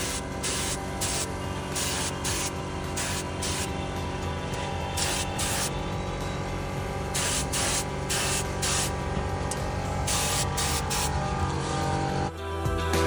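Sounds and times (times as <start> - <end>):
spray gun air hiss: 0.0 - 3.8, 4.9 - 5.8, 7.1 - 9.1, 10.0 - 11.2
background music: 0.0 - 13.0.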